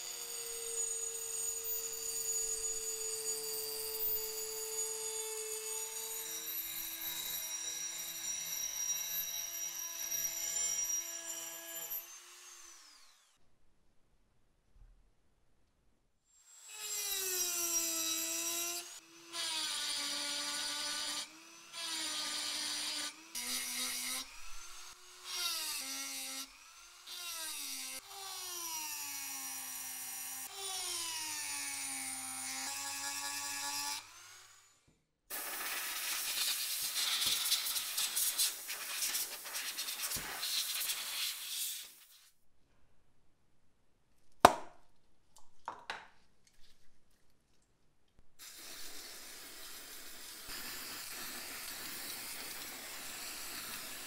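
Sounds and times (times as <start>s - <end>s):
rotary tool whining on metal: 0.0s - 13.4s.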